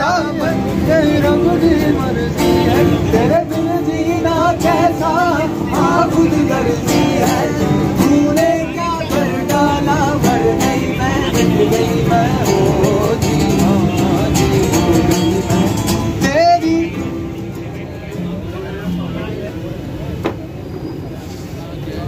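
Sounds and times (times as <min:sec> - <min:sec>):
man singing: 0:00.0 - 0:17.4
acoustic guitar strumming: 0:00.0 - 0:19.2.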